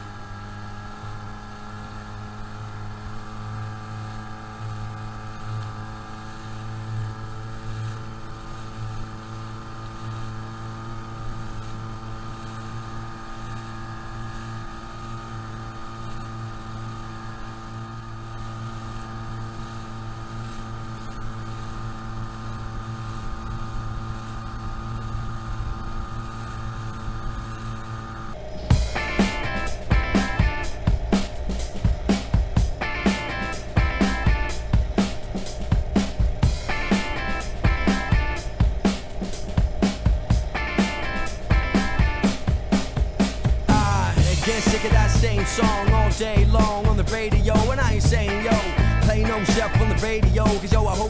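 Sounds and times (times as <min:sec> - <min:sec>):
outboard motor droning: 0:00.0 - 0:51.0
music: 0:28.6 - 0:51.0.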